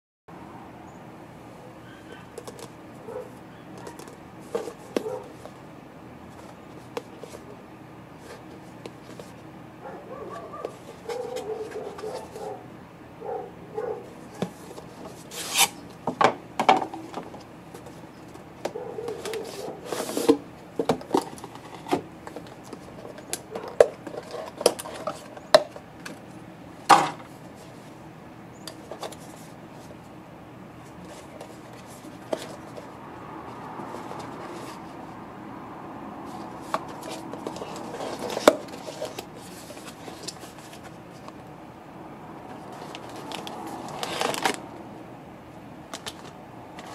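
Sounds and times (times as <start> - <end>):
cardboard box rubbing and sliding: 19.3 - 20.4.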